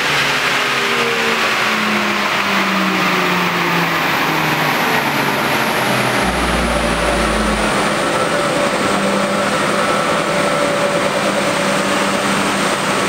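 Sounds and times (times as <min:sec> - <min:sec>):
car running on a dyno: 0:00.0 - 0:13.0.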